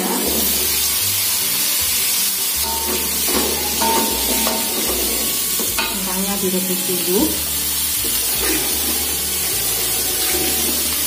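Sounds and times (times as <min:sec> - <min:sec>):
potatoes sizzling in a wok: 0:00.0 - 0:11.0
spatula stirring: 0:02.6 - 0:06.2.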